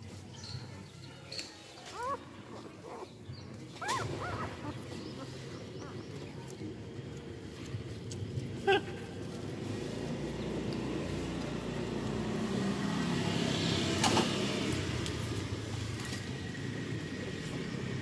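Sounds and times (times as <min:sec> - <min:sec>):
passing road vehicle rumble: 0:02.6 - 0:18.0.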